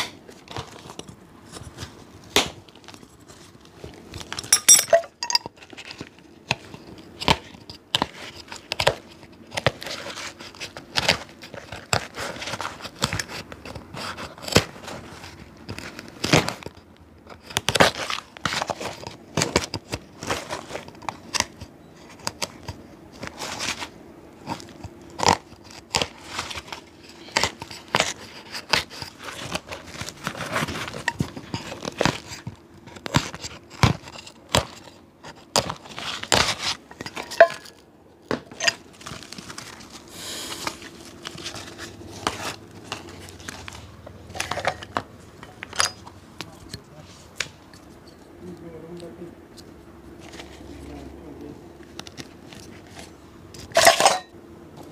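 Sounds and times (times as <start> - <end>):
tools scraping leather: 9.7 - 15.3.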